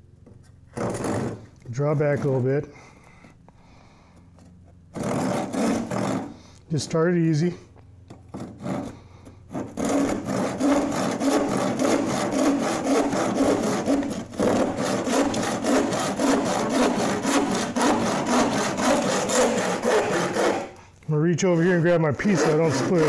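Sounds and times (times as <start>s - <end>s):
hand saw cutting board: 0.7s - 2.6s, 4.9s - 6.4s, 8.1s - 23.0s.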